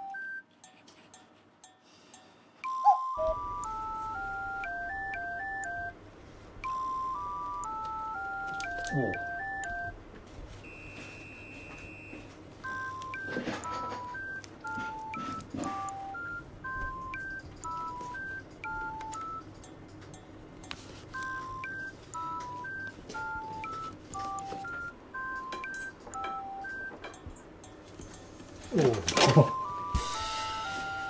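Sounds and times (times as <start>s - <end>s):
beep-like electronic melody: 2.6s - 6.0s, 6.6s - 10.0s, 12.6s - 19.5s, 21.2s - 27.0s, 29.1s - 31.0s.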